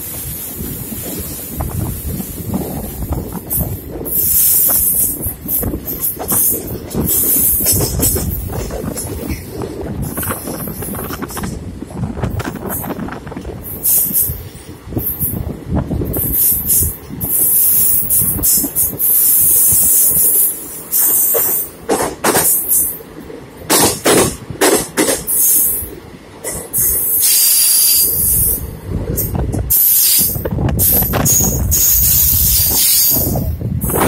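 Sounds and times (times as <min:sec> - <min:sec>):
train rumbling along track: 0:00.0 - 0:34.0
wind gusts on microphone: 0:00.0 - 0:34.0.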